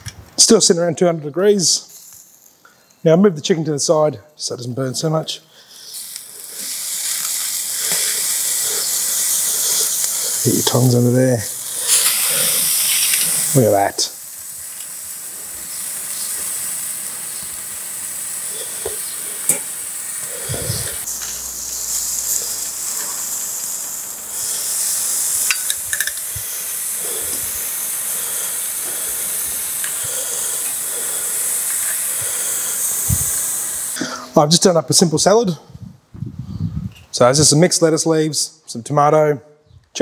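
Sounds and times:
chicken sizzling on a grill: 5.0s - 34.2s.

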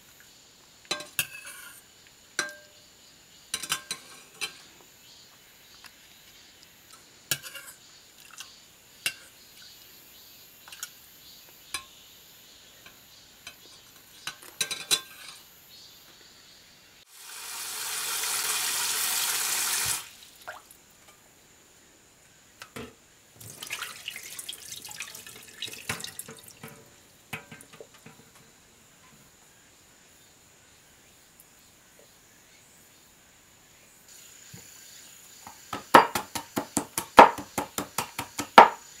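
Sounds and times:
metal spoon clinking on saucepan: 3.6s - 4.6s
tap running into metal bowl: 22.7s - 28.2s
clatter and splashing of water: 23.4s - 28.3s.

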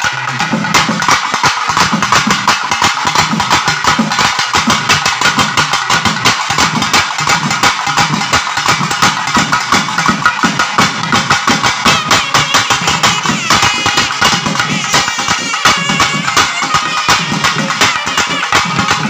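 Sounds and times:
drum ensemble fast rhythm: 0.0s - 19.0s.

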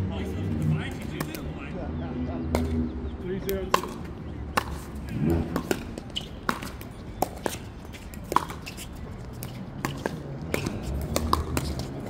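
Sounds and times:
paddles striking plastic ball: 3.7s - 4.8s.

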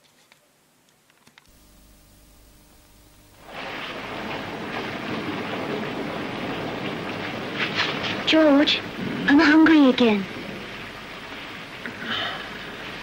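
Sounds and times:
low steady hum: 0.5s - 13.0s
loud even hiss: 1.5s - 13.0s.

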